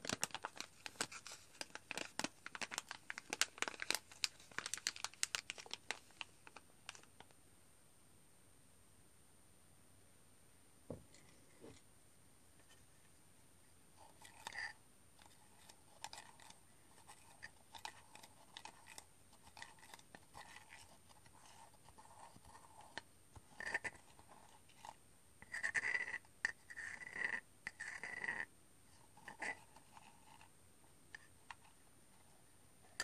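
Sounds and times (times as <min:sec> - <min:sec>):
spoon stirring in ceramic mug: 0:14.1 - 0:21.6.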